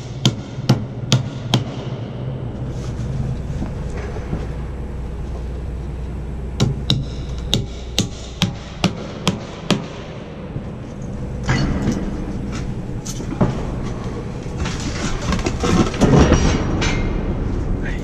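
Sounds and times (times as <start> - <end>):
material rattling and scraping: 10.8 - 17.1.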